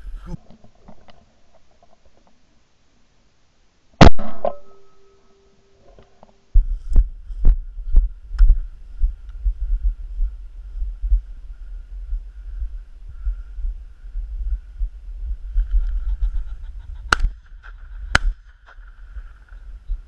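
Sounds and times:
shotgun shot: 4.0 - 4.8
heavy low rumble: 6.6 - 20.0
footsteps on snow: 14.2 - 20.0.

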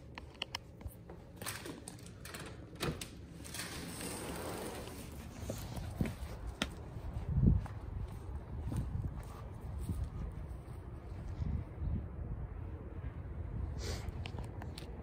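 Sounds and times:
sliding glass door rolling: 1.3 - 5.5.

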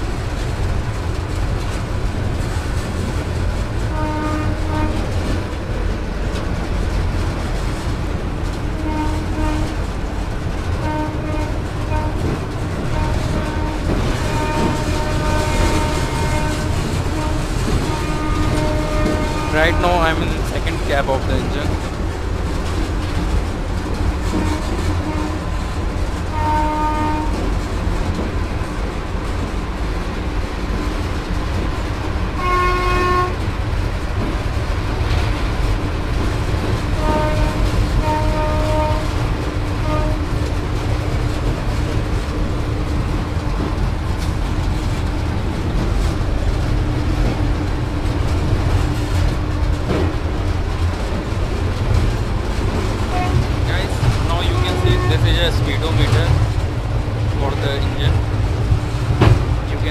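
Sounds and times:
electric locomotive rumble: 0.0 - 59.9
train horn blasts: 3.8 - 5.2, 8.8 - 9.9, 10.8 - 21.7, 24.3 - 25.6, 26.2 - 27.5, 32.4 - 33.4, 37.0 - 40.3, 53.1 - 56.3.

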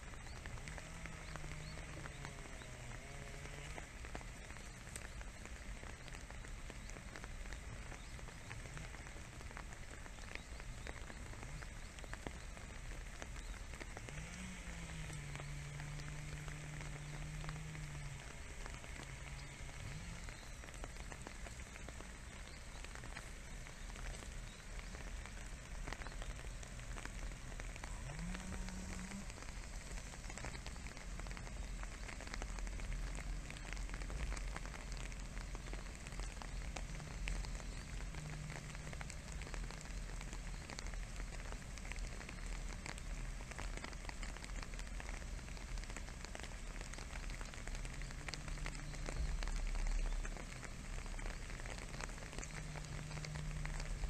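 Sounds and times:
light rain pattering on leaves: 0.0 - 54.0.

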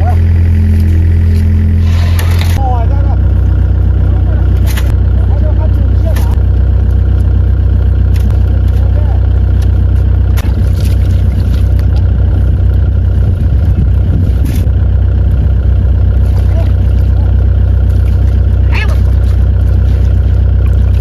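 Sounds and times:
diesel engine idling: 0.0 - 21.0
fish slapping and splashing: 4.5 - 5.0, 6.1 - 12.8, 16.0 - 21.0.

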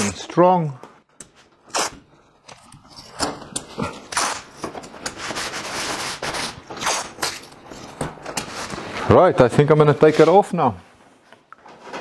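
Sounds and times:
masking tape ripping off roll: 1.6 - 2.1, 3.0 - 8.9
hand rubbing tape on cardboard: 3.7 - 7.5.

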